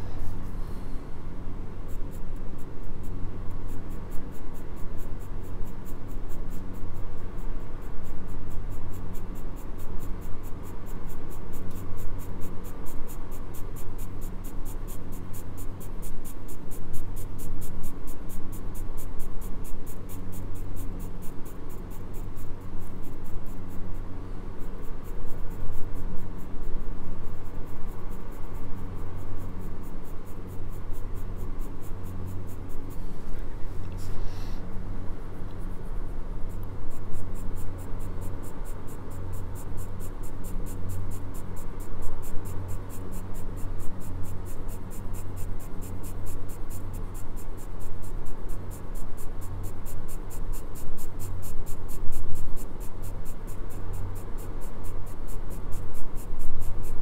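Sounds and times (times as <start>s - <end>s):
pencil scratching on paper: 1.9s - 34.6s, 35.4s - 57.0s.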